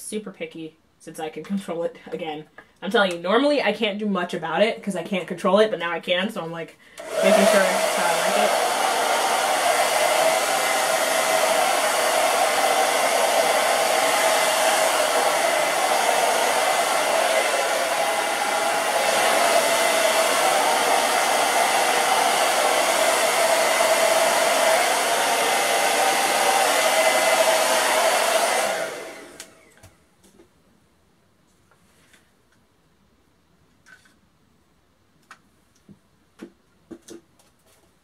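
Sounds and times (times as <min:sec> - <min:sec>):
hair dryer blowing: 0:07.0 - 0:30.0.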